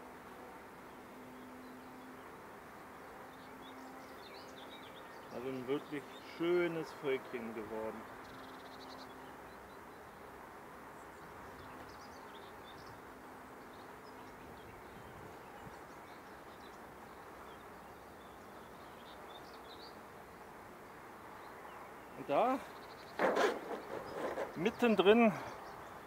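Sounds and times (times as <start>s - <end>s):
honeybees humming: 11.3s - 26.0s.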